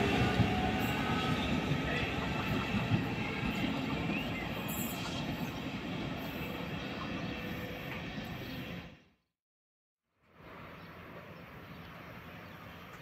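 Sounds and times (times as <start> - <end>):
train wheels rumbling on rails: 0.0 - 8.9.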